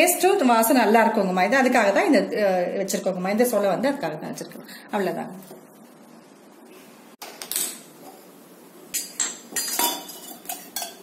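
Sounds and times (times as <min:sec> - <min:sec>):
metal cookware clattering: 0:08.9 - 0:11.0.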